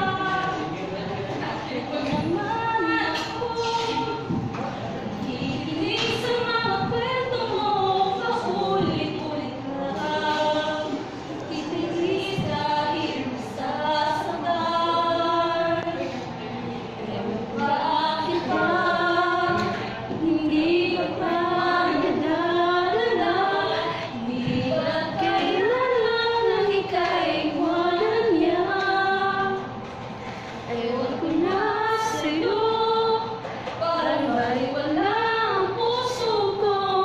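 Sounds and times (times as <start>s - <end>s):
group of voices singing serenade: 0.0s - 37.0s.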